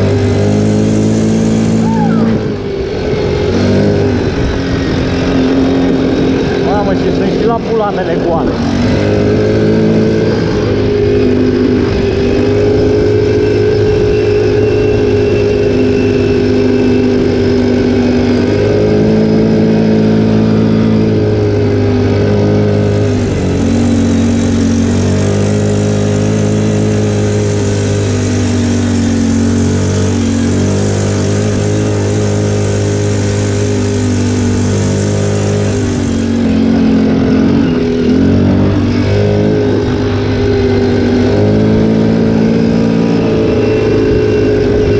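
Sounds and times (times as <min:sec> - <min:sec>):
atv engine running: 0:00.0 - 0:44.9.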